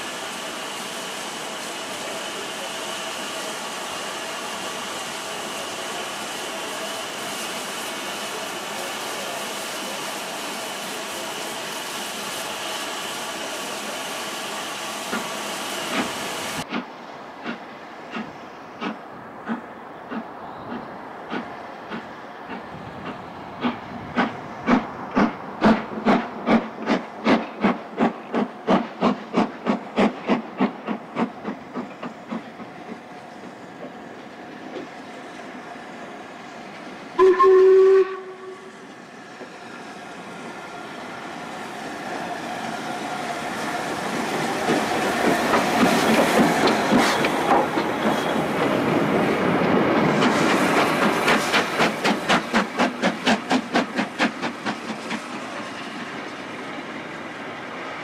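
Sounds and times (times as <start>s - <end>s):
steam hiss: 0.0s - 58.0s
steam locomotive exhaust beats: 0.0s - 58.0s
train wheel noise: 0.0s - 58.0s
loud locomotive whistle blast: 37.2s - 38.9s.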